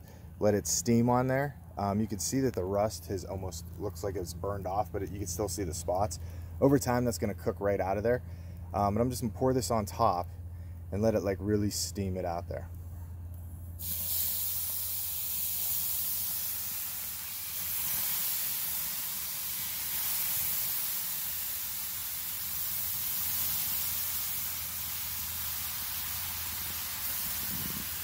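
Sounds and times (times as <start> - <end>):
low hum: 1.4 - 18.9
water sizzling on hot griddle: 13.8 - 28.0.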